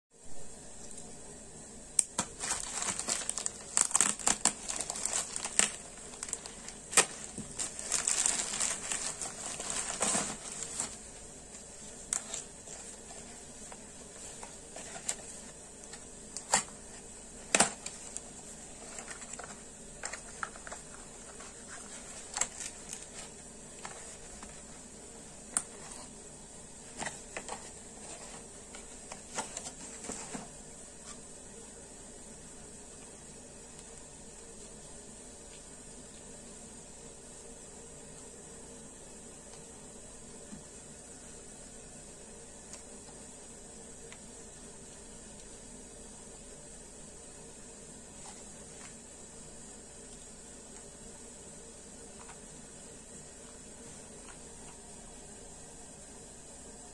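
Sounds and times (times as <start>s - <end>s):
plastic bag crinkling and tearing: 2.1s - 11.1s, 17.5s - 24.7s.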